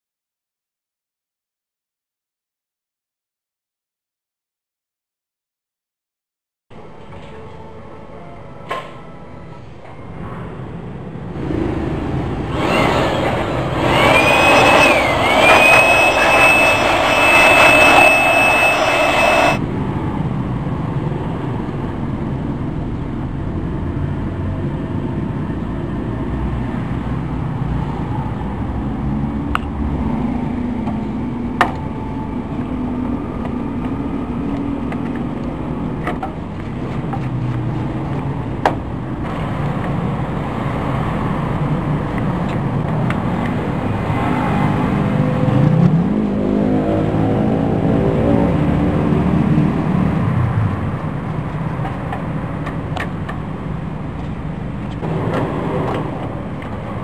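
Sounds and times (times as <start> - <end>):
electric blower whining: 12.4 - 19.6.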